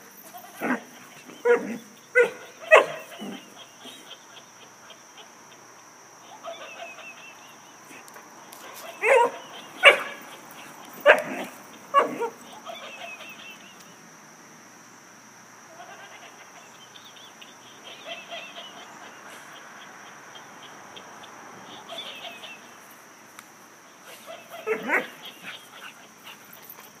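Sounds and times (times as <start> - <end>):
dog barking: 1.4 - 3.5, 8.8 - 10.3, 11.0 - 12.3, 24.1 - 25.9
toy laughter chatter: 3.1 - 5.6, 15.7 - 16.7.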